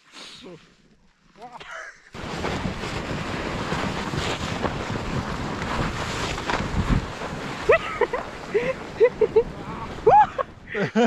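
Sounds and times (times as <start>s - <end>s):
wind buffeting microphone: 2.2s - 10.8s
sled sliding over snow: 2.2s - 11.0s.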